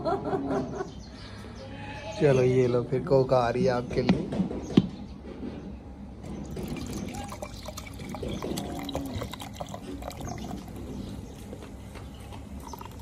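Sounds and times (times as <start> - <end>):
liquid gurgling from bottle: 6.5 - 10.8.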